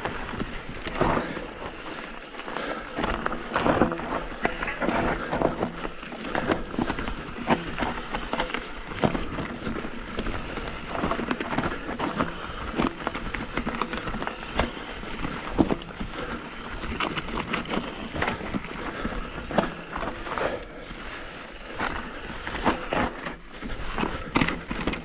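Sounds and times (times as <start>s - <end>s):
bike knocking and rattling: 0.0s - 25.0s
bike tyres on loose gravel: 0.0s - 25.0s.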